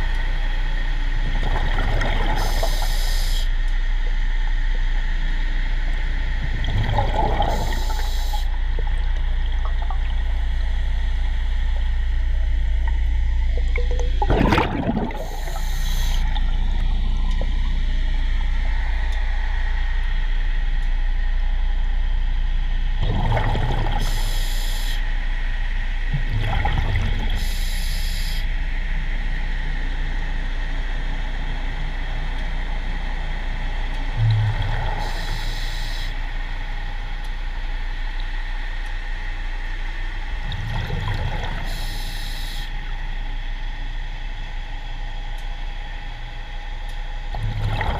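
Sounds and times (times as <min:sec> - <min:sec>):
steady low hum: 0:00.0 - 0:47.9
bubbles rushing: 0:01.3 - 0:02.8, 0:06.4 - 0:10.7, 0:12.9 - 0:17.7, 0:23.0 - 0:24.0, 0:26.2 - 0:27.4, 0:40.5 - 0:41.7, 0:47.4 - 0:47.9
diver breathing through regulator: 0:15.1 - 0:16.3.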